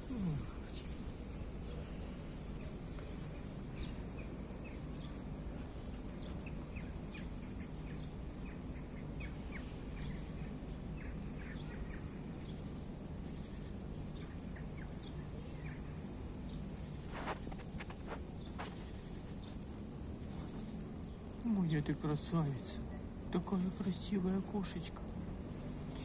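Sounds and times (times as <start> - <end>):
low background hum: 0.0 - 26.0
small birds chirping: 0.0 - 26.0.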